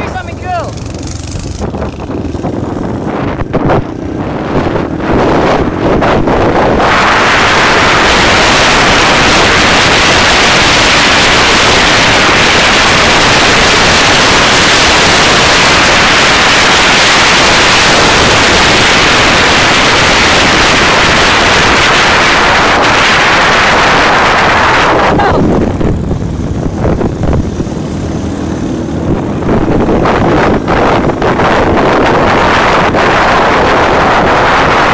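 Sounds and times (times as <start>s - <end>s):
faint motorbike engine: 0.0s - 6.3s
wind rushing across microphone: 0.0s - 34.9s.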